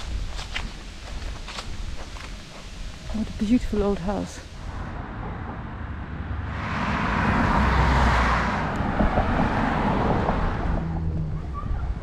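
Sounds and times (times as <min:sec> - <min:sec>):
steady low rumble: 0:00.0 - 0:12.0
car driving past: 0:04.7 - 0:11.5.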